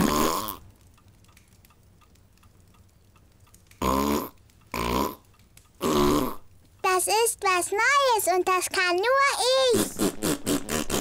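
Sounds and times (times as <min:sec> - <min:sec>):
faint regular ticking: 0:00.0 - 0:09.7
girl making throaty noises: 0:09.1 - 0:10.2.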